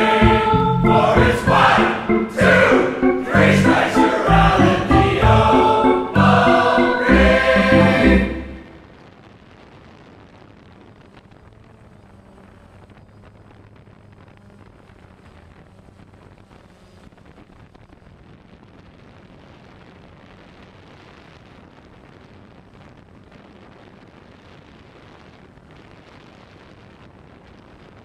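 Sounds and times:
steady rushing noise: 0.0s - 18.3s.

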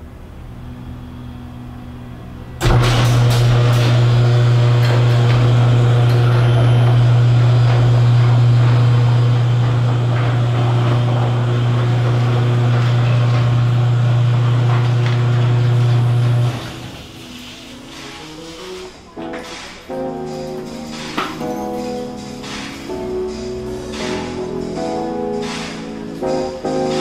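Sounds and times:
engine low hum: 0.0s - 17.0s.

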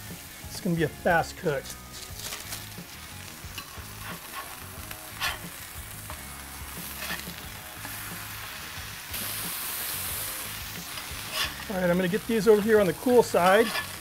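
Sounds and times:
burger patties sizzling on griddle: 0.0s - 14.0s
metal spatula scraping griddle: 3.4s - 8.6s, 9.2s - 14.0s.

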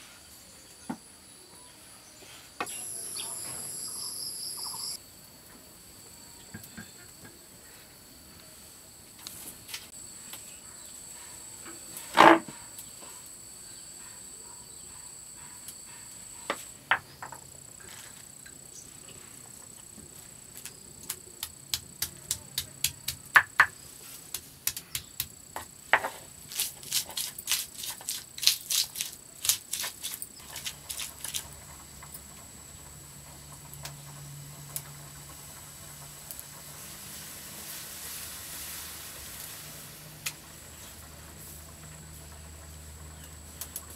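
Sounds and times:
high insect trill: 0.0s - 43.9s.

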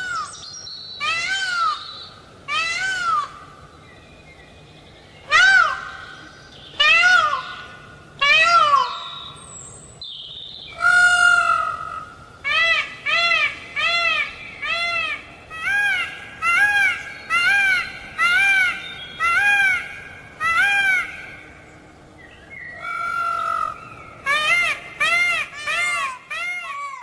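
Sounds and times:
peafowl calling: 10.7s - 21.5s, 22.8s - 27.0s.

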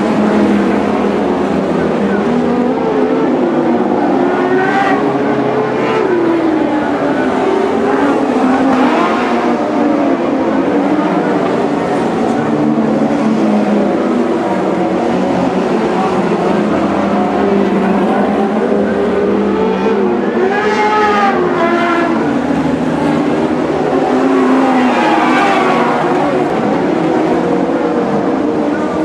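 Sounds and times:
racing car engines: 0.0s - 29.0s.

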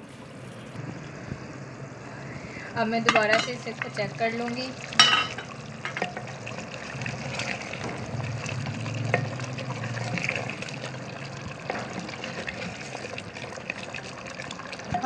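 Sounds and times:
curry simmering: 3.1s - 15.0s
wooden spoon stirring: 4.9s - 15.0s.

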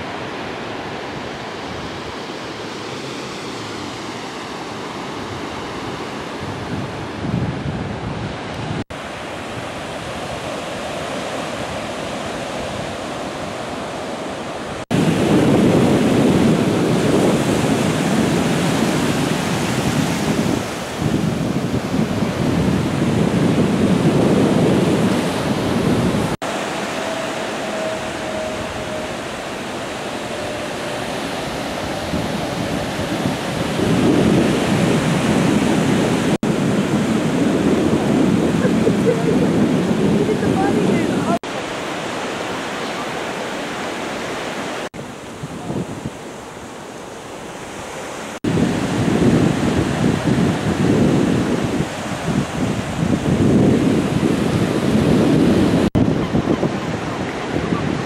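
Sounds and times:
ocean surf breaking on beach: 0.0s - 58.0s
wind buffeting microphone: 0.0s - 58.0s.

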